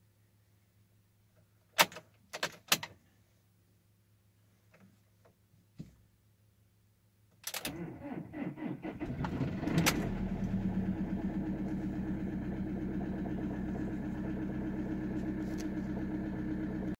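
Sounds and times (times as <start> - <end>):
starter motor cranking: 7.7 - 16.0
diesel engine idling: 8.8 - 16.9.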